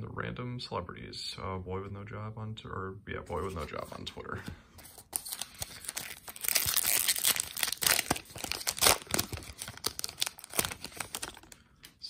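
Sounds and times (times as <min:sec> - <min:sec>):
plastic wrapper tearing and crinkling: 0:05.1 - 0:12.0.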